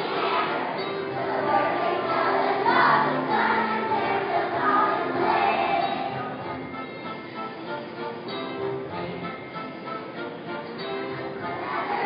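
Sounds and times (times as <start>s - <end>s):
children's choir singing: 0.0s - 7.5s, 9.9s - 12.0s.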